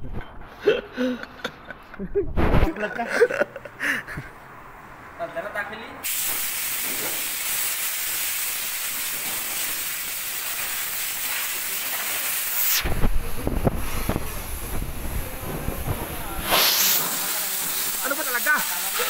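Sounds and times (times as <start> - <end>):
steady hiss: 6.0 - 19.0.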